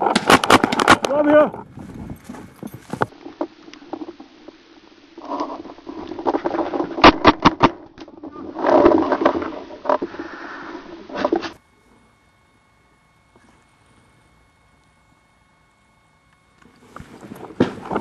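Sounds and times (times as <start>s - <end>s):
rustling and scuffing of movement: 0.0s - 3.5s.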